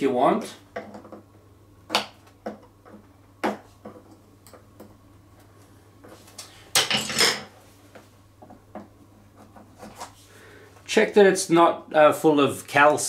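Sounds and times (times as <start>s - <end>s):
metal tools clattering on tiles: 6.8s - 7.5s.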